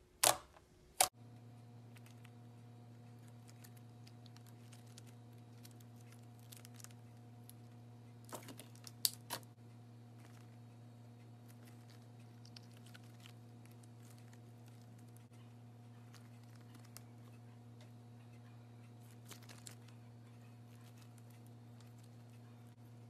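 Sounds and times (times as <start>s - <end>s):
steady low hum: 0.0s - 23.0s
slime sticky crackles: 11.3s - 15.4s, 19.0s - 22.4s.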